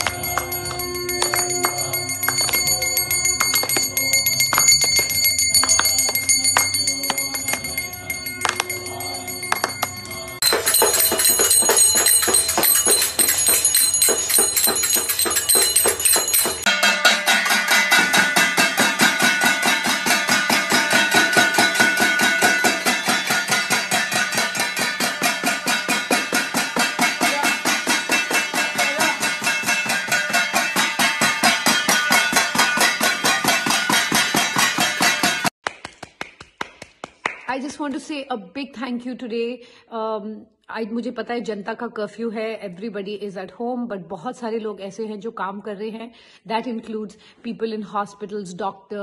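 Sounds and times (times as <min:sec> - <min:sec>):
hand clapping: 0:00.0 - 0:02.6, 0:08.4 - 0:08.8, 0:34.0 - 0:37.8
spoons beating metal plates: 0:00.0 - 0:35.6.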